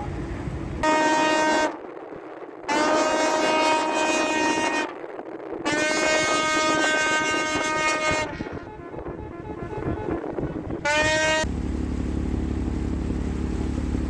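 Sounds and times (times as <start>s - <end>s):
ship's horn blasts: 0.8s - 1.8s, 2.7s - 5.0s, 5.6s - 12.2s.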